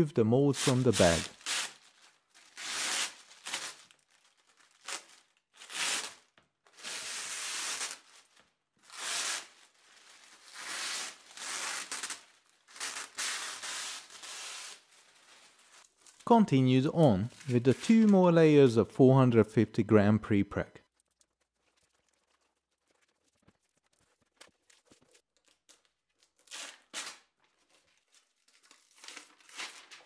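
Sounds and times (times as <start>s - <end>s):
plastic film peeling and crinkling: 0.6s - 16.4s, 17.1s - 18.2s, 20.9s - 30.0s.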